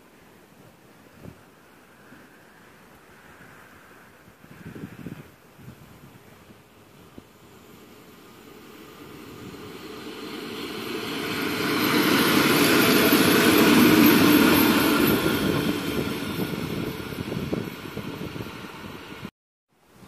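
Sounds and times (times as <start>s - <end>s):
electric locomotives passing: 6.4s - 19.3s.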